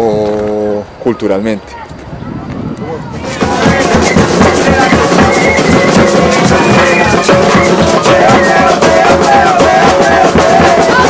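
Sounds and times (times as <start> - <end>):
drum kit beat: 3.2 - 11.0.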